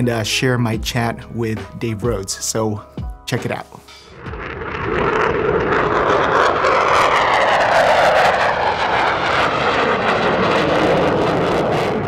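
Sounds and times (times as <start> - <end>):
fighter jet flying past: 4.1 - 12.0.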